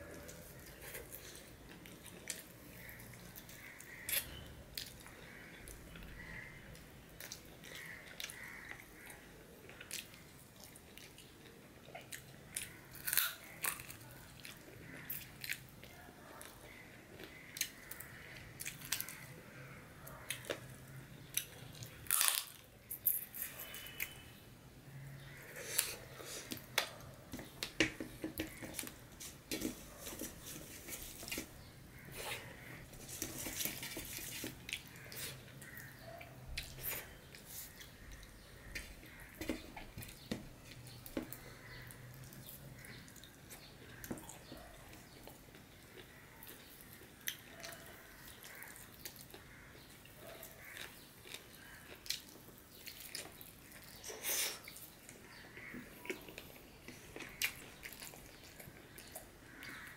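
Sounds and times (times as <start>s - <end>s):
wet chewing: 25.6s - 59.9s.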